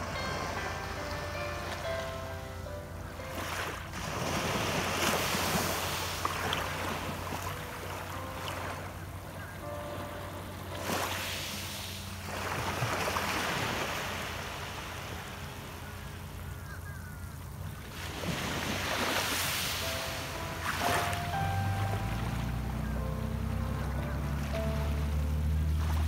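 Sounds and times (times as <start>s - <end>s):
small waves washing on pebble beach: 3.3s - 7.6s, 10.7s - 16.2s, 16.8s - 22.2s.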